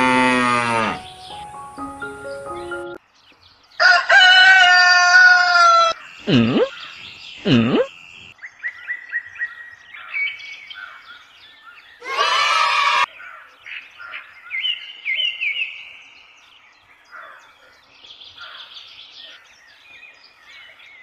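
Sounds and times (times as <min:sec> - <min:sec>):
birds chirping: 0:00.0 - 0:21.0
rooster crowing: 0:03.8 - 0:06.0, 0:12.0 - 0:13.1.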